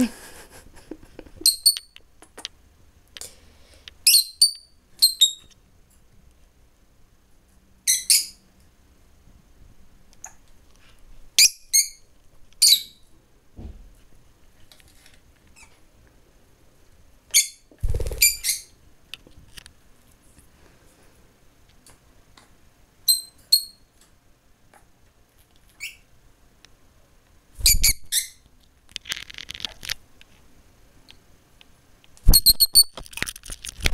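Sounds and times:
lovebird chirping: 17.3 - 18.8.

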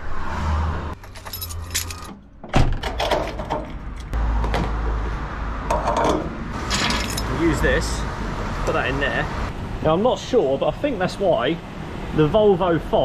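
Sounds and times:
door shutting: 1.8 - 3.7.

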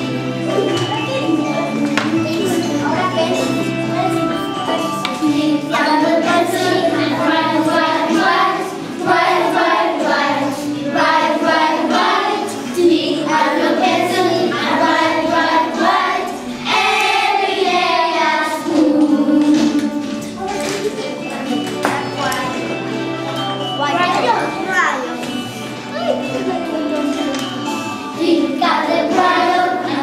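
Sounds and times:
children singing in chorus: 4.7 - 20.4, 28.0 - 30.0.

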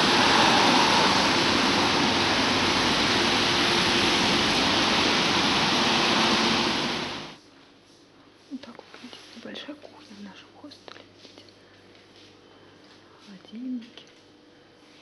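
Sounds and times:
car tyres hissing on wet road: 0.0 - 7.4.

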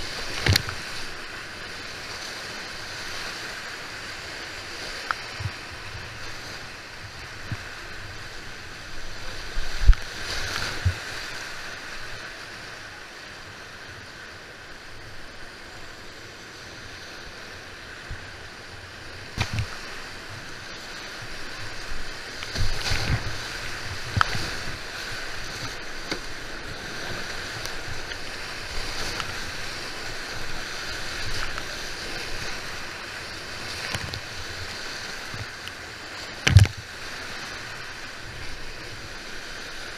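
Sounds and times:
whitewater rushing: 0.0 - 39.9
water splashing over boat: 18.0 - 39.9.

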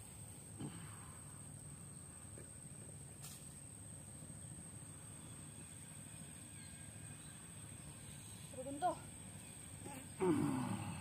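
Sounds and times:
high-pitched insect drone: 4.4 - 11.0.

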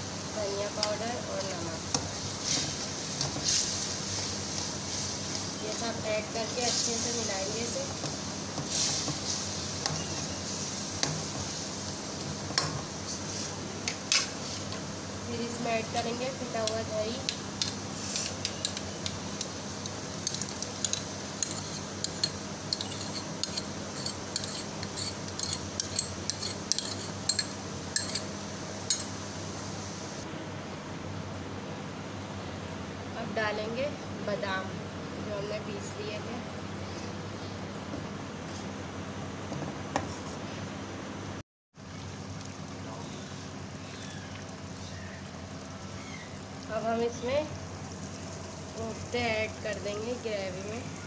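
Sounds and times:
light sizzling: 0.0 - 30.3, 41.8 - 51.0
pan cooking hiss and hum: 0.0 - 51.0
metal spoon scraping a bowl: 20.8 - 28.3.

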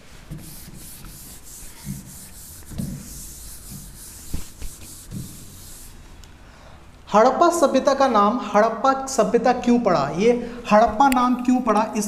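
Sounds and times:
palm rubbing on glass: 0.3 - 6.0.

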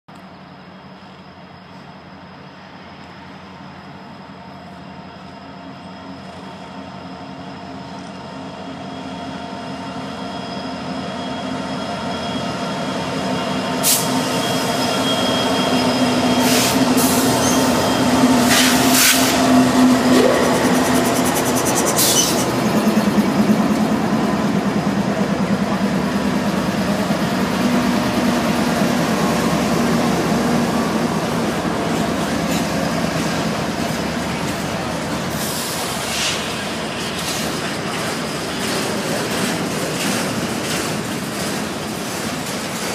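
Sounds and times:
diesel locomotive engine drone: 0.1 - 42.9
high-pitched train screeches: 0.6 - 23.6.

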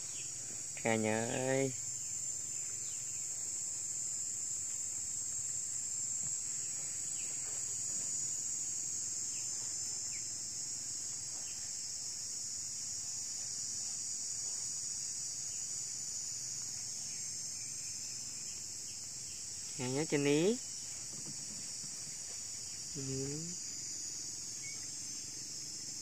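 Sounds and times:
insect chorus buzzing: 0.0 - 26.0.

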